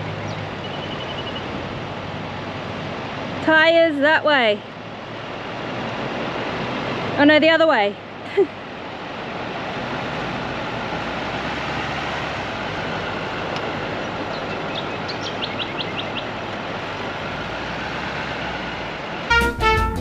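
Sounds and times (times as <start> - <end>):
bird chirping: 0.2 - 1.5, 14.3 - 16.3
swing music: 19.3 - 20.0.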